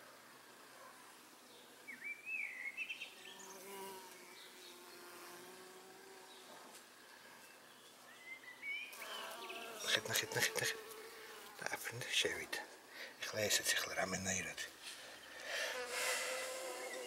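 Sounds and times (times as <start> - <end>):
birds chirping: 1.5 - 5.6, 6.2 - 15.8, 16.6 - 17.0
honeybee buzzing: 3.2 - 6.5, 8.9 - 11.8, 15.6 - 17.0.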